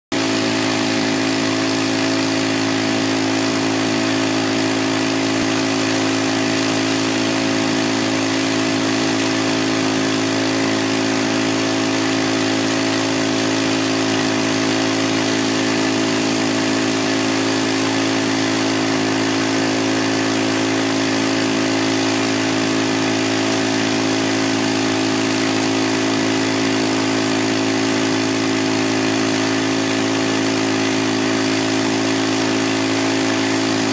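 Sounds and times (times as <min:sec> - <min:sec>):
small gasoline engine running: 0:00.0 - 0:33.9.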